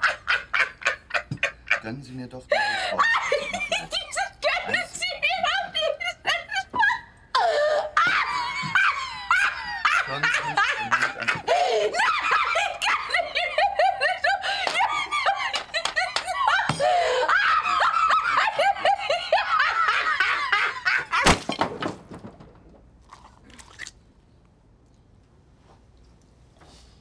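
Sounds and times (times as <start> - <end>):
woman laughing loudly: 2.9 - 21.3.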